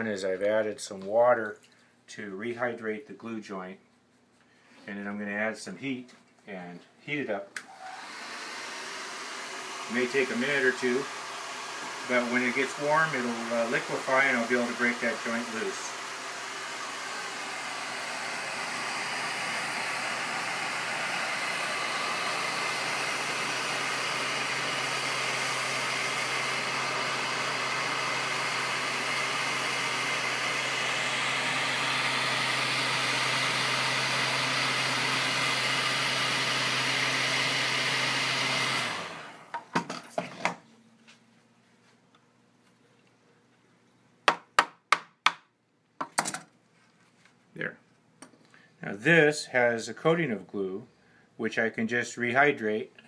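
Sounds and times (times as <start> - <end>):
heat gun blowing air: 7.6 - 39.5.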